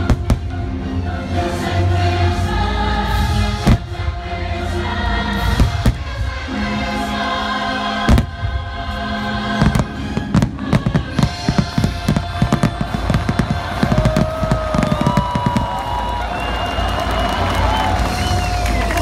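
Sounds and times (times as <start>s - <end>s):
choral music: 0.0s - 19.0s
fireworks bursting: 8.0s - 8.6s, 9.5s - 19.0s.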